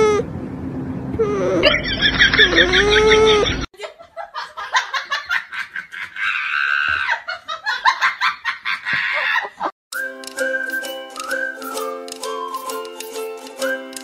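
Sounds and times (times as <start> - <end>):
dog whining: 0.0 - 0.3, 1.1 - 3.7
person laughing: 1.4 - 9.7.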